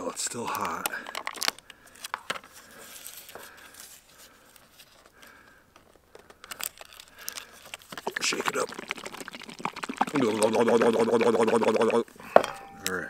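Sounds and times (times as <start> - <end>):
packet rustling and tearing: 0.6 - 5.2, 6.2 - 10.4.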